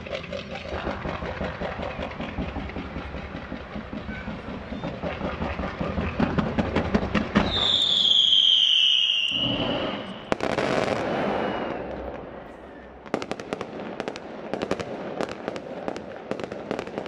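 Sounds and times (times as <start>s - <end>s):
rapid firework pops: 0.0s - 17.0s
shrill falling firework whistle: 7.2s - 13.0s.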